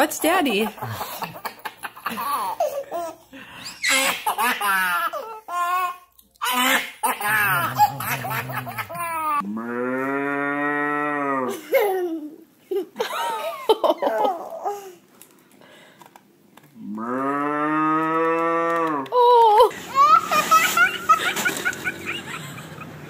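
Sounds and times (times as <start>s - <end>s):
man imitating cow mooing: 7.2s - 11.5s, 16.8s - 19.1s.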